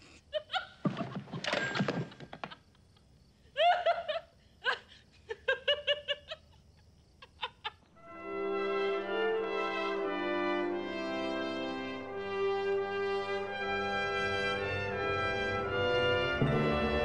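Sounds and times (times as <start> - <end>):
woman giggling: 0.0 - 1.5, 2.4 - 7.9.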